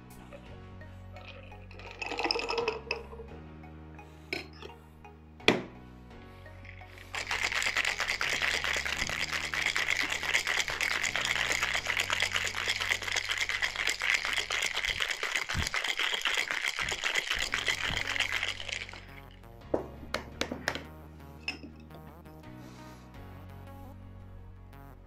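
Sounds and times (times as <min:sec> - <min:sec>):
ice rattling in cocktail shaker: 0:01.2 - 0:03.2, 0:06.8 - 0:19.4.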